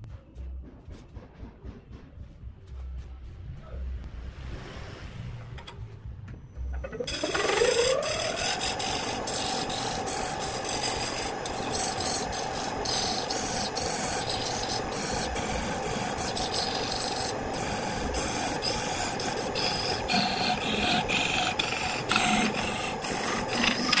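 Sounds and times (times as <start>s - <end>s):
rasping rub on spinning wood: 6.8s - 24.0s
wood lathe motor whine: 6.8s - 24.0s.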